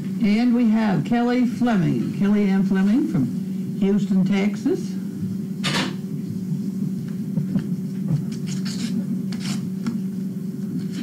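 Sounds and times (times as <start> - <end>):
low hum: 0.0 - 11.0
paper rustling: 8.2 - 9.6
pen scratching on paper: 8.4 - 9.6.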